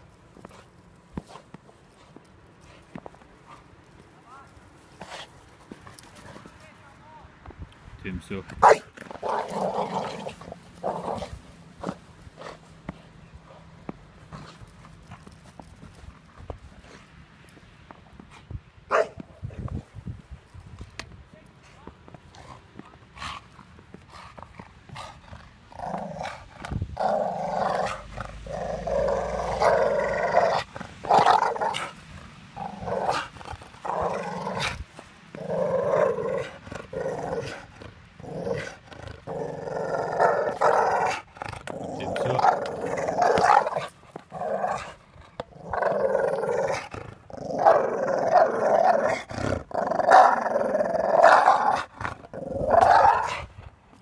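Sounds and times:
dog play-growling: 4.8s - 6.6s, 8.6s - 17.2s, 22.1s - 54.0s.

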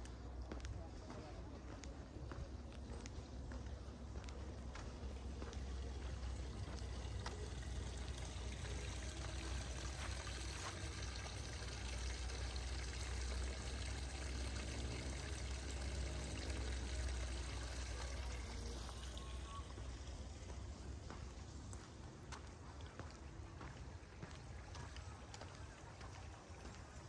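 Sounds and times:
low steady rumble: 0.0s - 27.0s
water trickling and pouring: 4.3s - 21.1s, 22.7s - 27.0s.

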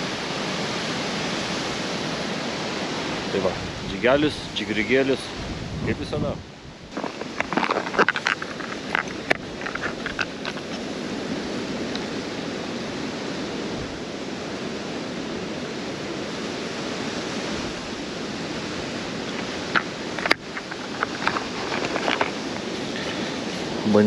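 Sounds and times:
wind rushing: 3.0s - 11.8s.

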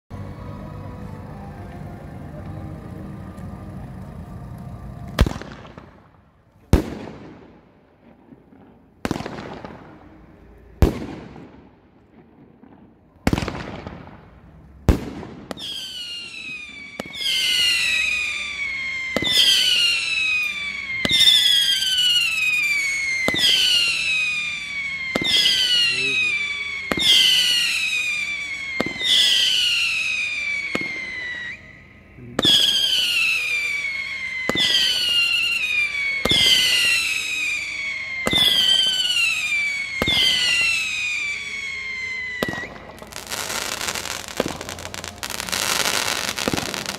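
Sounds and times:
loud firework bangs: 5.2s - 41.8s, 42.4s - 46.9s
shrill falling firework whistles: 12.4s - 46.9s.

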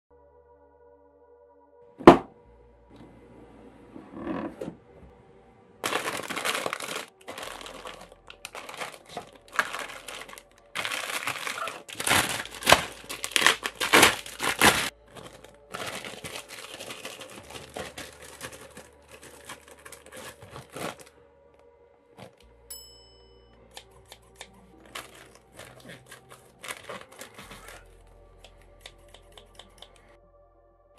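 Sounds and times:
plastic bags crinkling and tearing: 5.8s - 21.1s, 24.4s - 28.0s.

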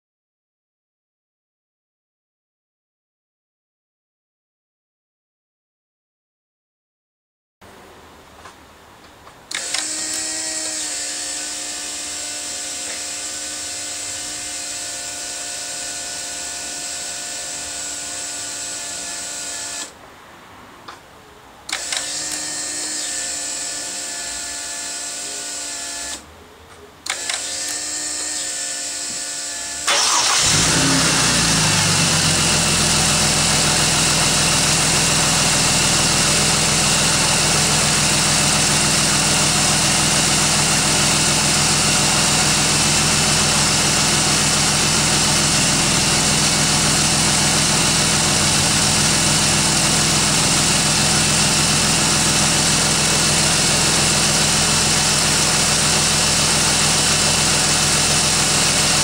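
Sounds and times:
fuel pump buzzing: 9.5s - 19.9s, 27.1s - 59.0s
car engine idling: 29.9s - 59.0s.

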